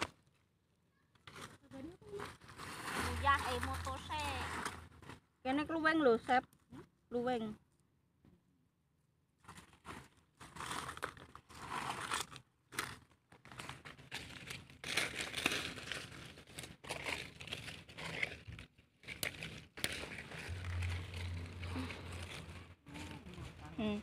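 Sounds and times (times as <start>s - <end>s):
dry leaves crunching: 1.3s - 5.2s, 9.6s - 24.0s
low hum: 20.3s - 24.0s.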